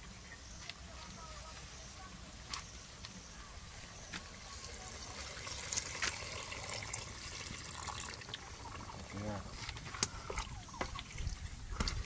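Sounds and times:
water pouring into a metal pot: 4.5 - 9.5.

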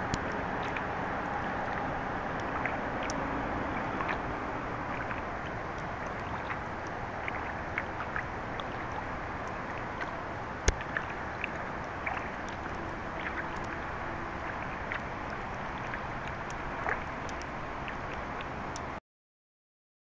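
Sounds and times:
small water drips and splashes: 0.0 - 19.0
water washing along kayak hull: 0.0 - 19.0.

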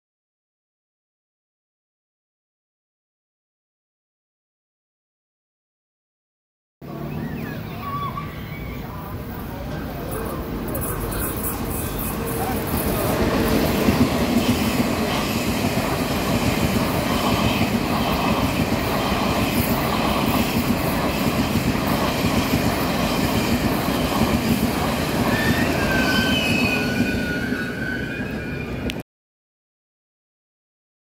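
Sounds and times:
train wheels rumbling on rails: 9.1 - 29.0
wheels clickety-clack: 9.7 - 28.0
high wheel squeals: 10.1 - 13.8, 25.1 - 29.0.

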